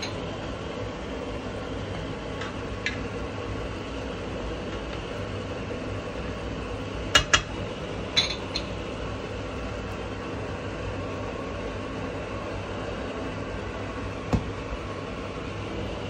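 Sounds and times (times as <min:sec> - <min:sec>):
steady background hum: 0:00.0 - 0:16.0
kitchenware clinking: 0:08.2 - 0:08.7.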